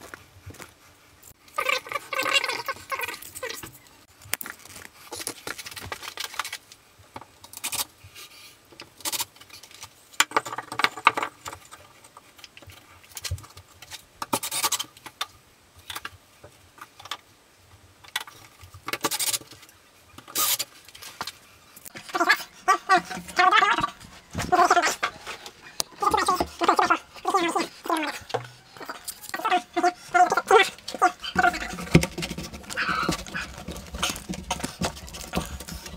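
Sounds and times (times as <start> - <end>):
wooden box knocking and scraping: 30.4 - 35.9.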